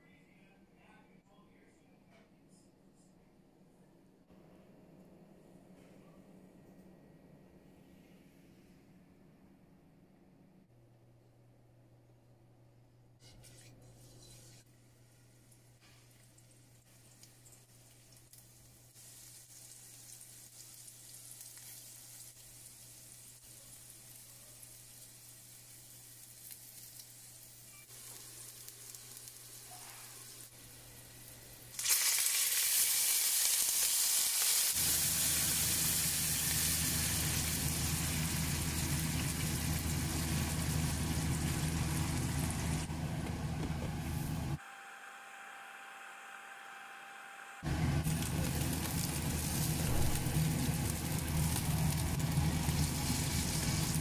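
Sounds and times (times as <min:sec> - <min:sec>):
buns sizzling in oil: 0:13.2 - 0:42.9, 0:47.7 - 0:54.0
loud sizzling and bubbling: 0:13.2 - 0:43.0, 0:47.6 - 0:54.0.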